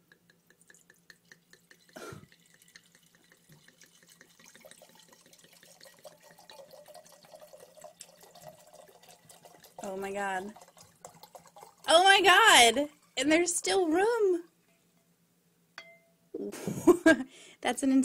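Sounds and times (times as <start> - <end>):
wine pouring into a glass: 0.1 - 14.6
glass knock: 15.8 - 16.1.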